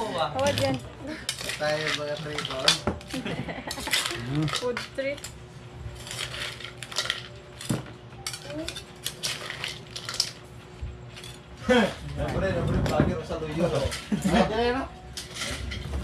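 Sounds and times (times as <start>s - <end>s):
metal spoon scraping a pan: 1.3s - 2.8s, 6.0s - 7.4s.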